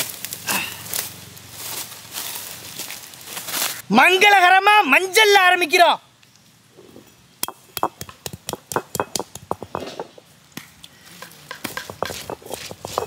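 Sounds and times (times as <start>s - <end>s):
stone knocking on stone: 7.4s - 10.2s, 11.2s - 13.0s.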